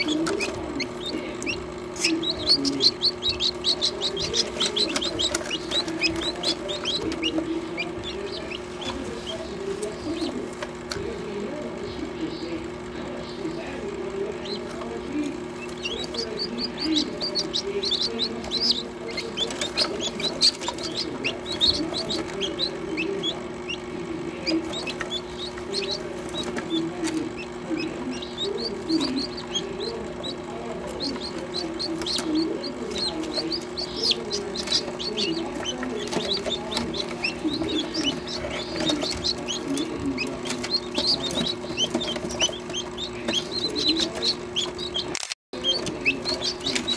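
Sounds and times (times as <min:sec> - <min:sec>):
chicks peeping: 0:00.0 - 0:46.9
steady low hum: 0:00.0 - 0:46.9.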